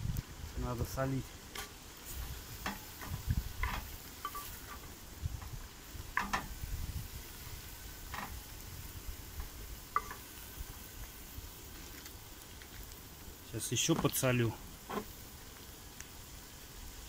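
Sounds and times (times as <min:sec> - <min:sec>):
meat sizzling in a pot: 0:00.0 - 0:17.0
utensil scraping and knocking pot: 0:01.6 - 0:06.6, 0:08.1 - 0:08.4, 0:09.4 - 0:10.3.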